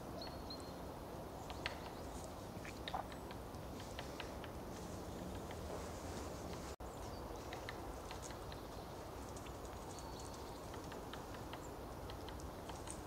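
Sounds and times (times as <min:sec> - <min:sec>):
steady low hiss: 0:00.0 - 0:13.0
faint high ticks and clicks: 0:01.4 - 0:05.8, 0:07.4 - 0:13.0.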